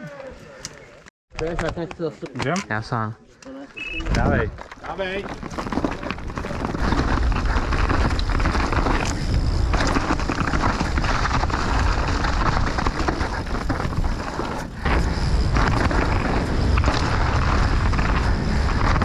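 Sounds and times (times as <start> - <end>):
bike tyre noise: 3.7 - 19.0
wind rushing on microphone: 3.9 - 4.6, 6.2 - 19.0
bike rattling clatter: 4.1 - 19.0.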